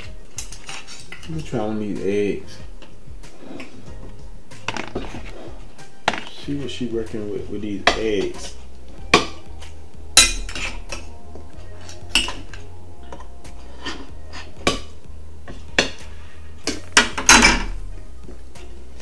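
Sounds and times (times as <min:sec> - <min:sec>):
metal cutlery clinking on bowls: 0:00.0 - 0:01.6, 0:10.2 - 0:11.1.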